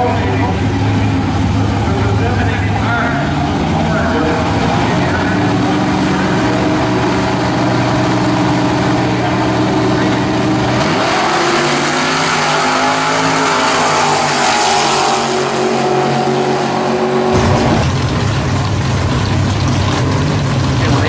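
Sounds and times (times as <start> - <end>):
engine idling: 0.0 - 10.8, 16.9 - 21.0
drag racing cars accelerating: 0.0 - 21.0.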